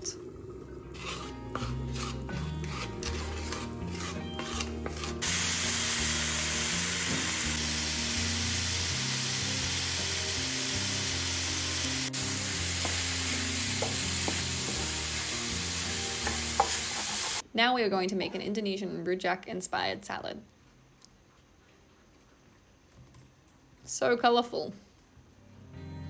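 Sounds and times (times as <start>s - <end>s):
spatula scraping skillet: 1.0s - 5.8s, 12.6s - 17.4s
food sizzling in hot oil: 5.2s - 17.4s.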